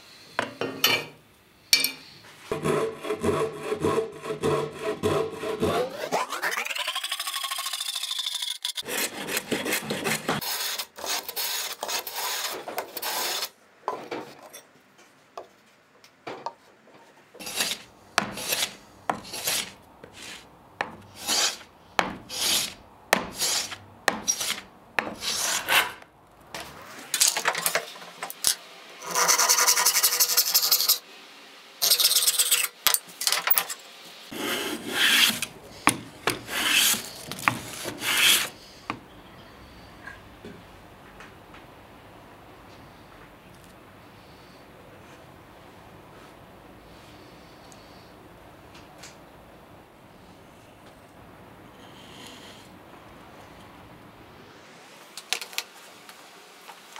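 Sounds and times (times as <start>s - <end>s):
hand plane rasping on wood: 2.5s - 6.6s, 8.8s - 13.5s, 17.4s - 20.4s, 21.1s - 21.6s, 22.3s - 25.9s, 36.3s - 38.5s.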